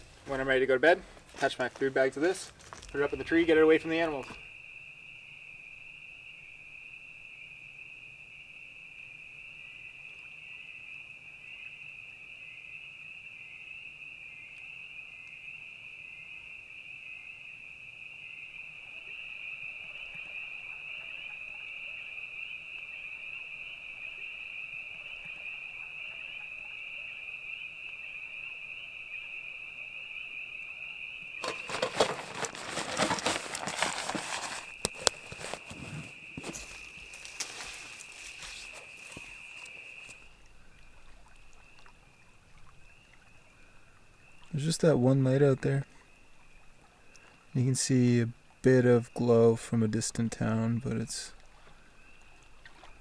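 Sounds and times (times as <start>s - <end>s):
crickets trilling: 0.0s - 53.0s
dry bag crinkling and rustling: 31.4s - 40.2s.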